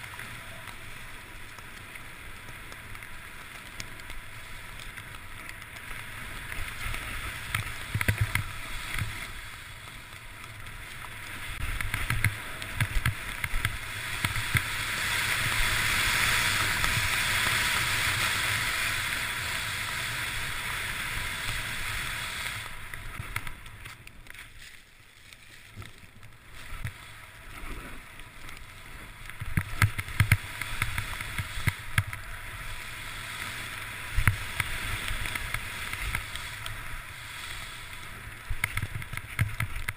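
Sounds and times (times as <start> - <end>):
snow hissing under skis: 12.4 - 23.2, 26.4 - 28.1, 30.0 - 38.6.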